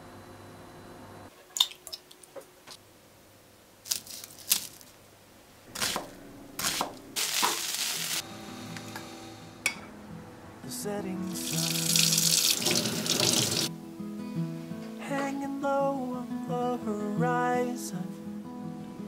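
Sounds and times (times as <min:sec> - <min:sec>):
knife cutting onion on board: 0:05.8 - 0:07.7.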